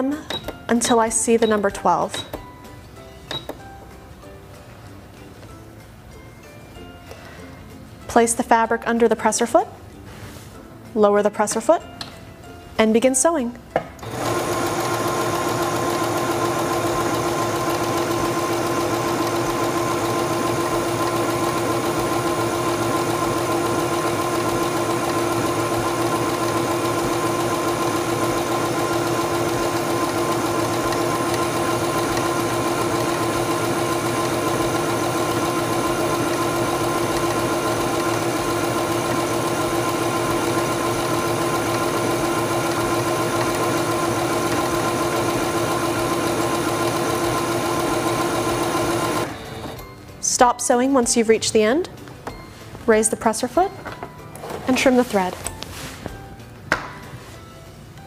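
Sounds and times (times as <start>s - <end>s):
sewing machine motor hum: 14.0s - 49.9s.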